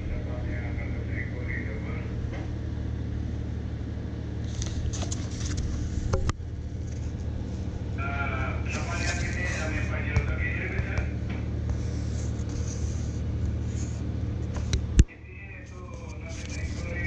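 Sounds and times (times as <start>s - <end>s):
low machinery hum: 0.0s - 17.0s
paper pages rustling: 4.5s - 5.8s, 8.7s - 9.9s, 11.7s - 14.7s, 15.7s - 17.0s.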